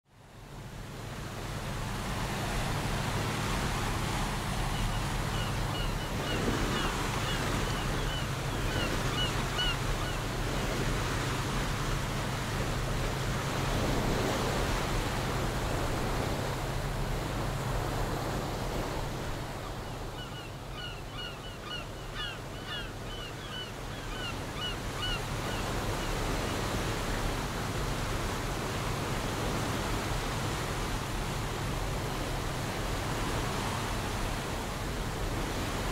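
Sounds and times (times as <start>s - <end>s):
ocean waves washing: 0.2s - 35.9s.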